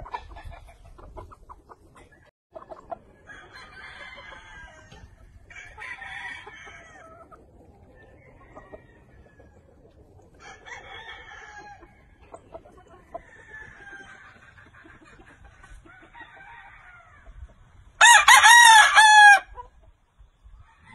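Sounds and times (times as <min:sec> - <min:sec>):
chickens clucking: 0:00.0 - 0:18.0, 0:19.4 - 0:20.9
roosters crowing: 0:02.8 - 0:14.8, 0:15.6 - 0:19.7, 0:20.6 - 0:20.9.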